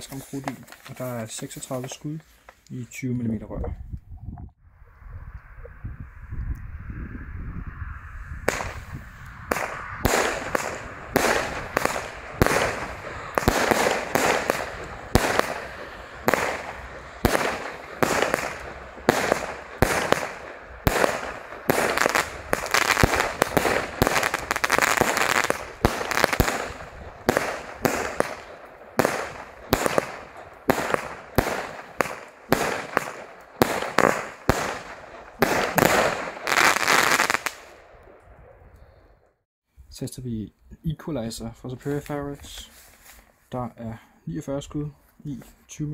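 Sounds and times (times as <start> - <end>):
firework bangs: 8.4 - 38.0.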